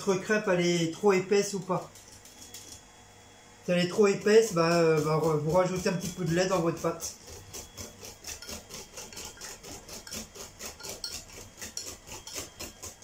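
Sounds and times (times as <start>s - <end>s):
spoon scraping glass bowl: 4.0s - 13.0s.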